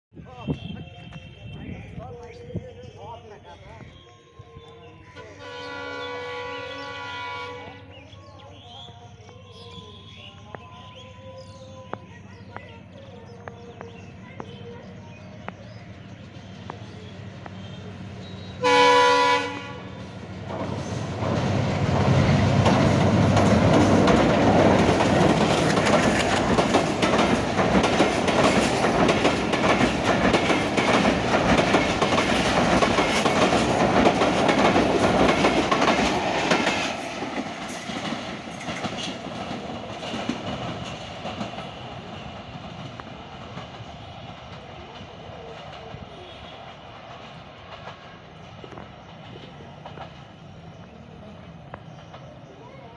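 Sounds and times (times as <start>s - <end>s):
locomotive horn blast: 5.2s - 7.9s, 18.6s - 20.1s
train wheels clattering on bridge: 20.4s - 50.3s.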